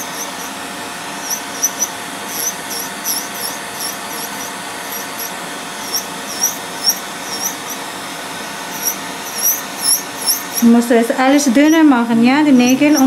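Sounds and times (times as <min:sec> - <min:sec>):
short high squeaks: 0:00.0 - 0:00.6, 0:01.2 - 0:07.8, 0:08.7 - 0:10.7, 0:12.5 - 0:13.0
electric nail drill grinding: 0:00.0 - 0:13.0.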